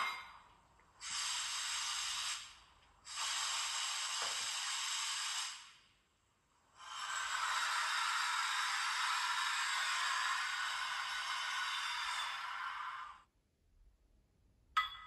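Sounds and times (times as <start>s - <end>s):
hissing compressed air bursts: 1.0s - 6.0s, 6.7s - 13.3s.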